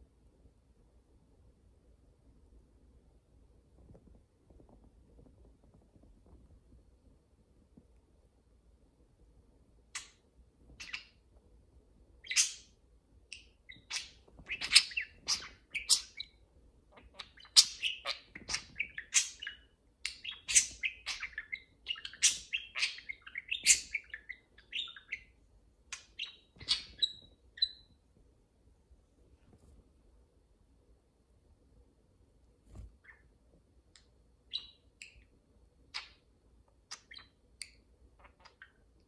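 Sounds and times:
budgerigars chirping and chattering: 10.8 - 11.2, 12.2 - 12.7, 13.4 - 16.3, 17.0 - 25.3, 26.0 - 27.8.

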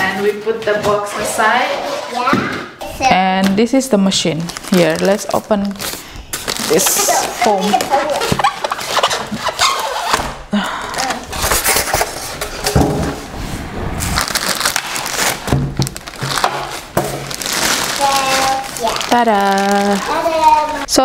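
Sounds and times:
foam scraping and crackling: 13.3 - 21.0.

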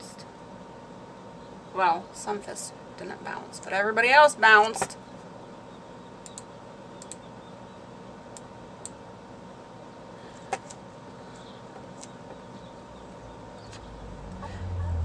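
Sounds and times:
mouse and keyboard clicks: 6.2 - 7.3.

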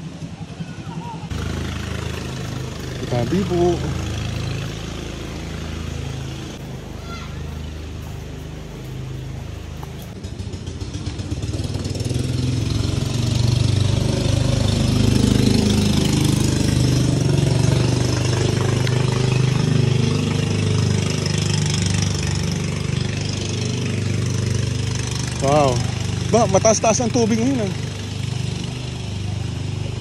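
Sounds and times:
engine running: 0.0 - 30.0.

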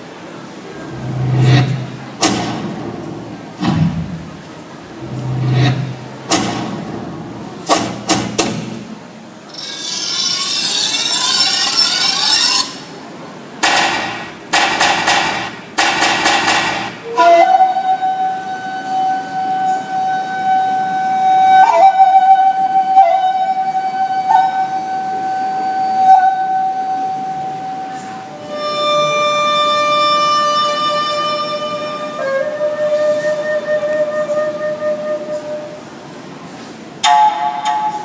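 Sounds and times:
electronic hits and whooshes: 1.0 - 4.4, 13.6 - 17.0
long held electronic tone: 17.0 - 35.8.

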